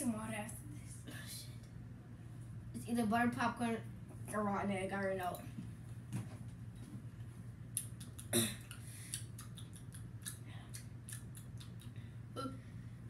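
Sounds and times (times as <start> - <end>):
child chewing with mouth clicks: 7.7 - 12.1.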